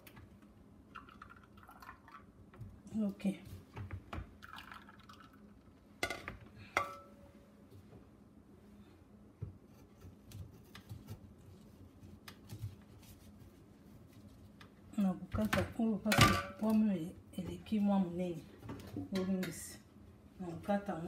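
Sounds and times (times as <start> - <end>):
kitchenware knocks and clinks: 16.1 - 16.7.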